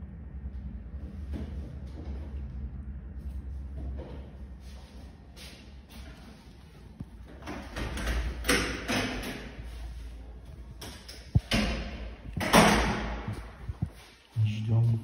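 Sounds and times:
door opening and closing: 0:07.3 - 0:09.7, 0:10.7 - 0:13.8.

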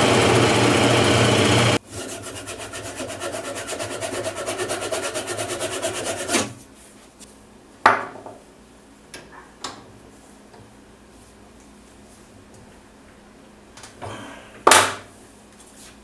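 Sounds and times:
lathe tool rasping on wood: 0:00.0 - 0:06.5.

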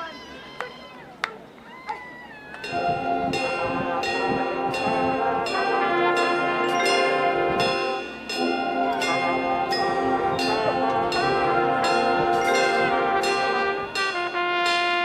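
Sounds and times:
bell-like ringing tones: 0:02.6 - 0:14.5
brass chords: 0:02.6 - 0:15.0
percussion strikes: 0:02.6 - 0:15.0.

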